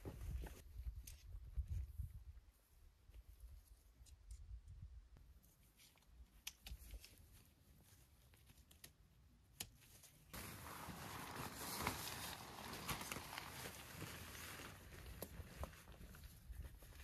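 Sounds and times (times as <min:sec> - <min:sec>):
tent poles and clips clicking: 0:05.7 - 0:07.4.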